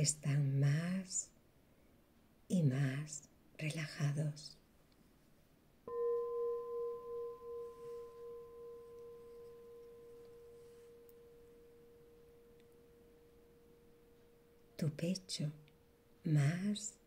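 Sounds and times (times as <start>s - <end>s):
singing bowl ringing: 5.9s - 16.3s.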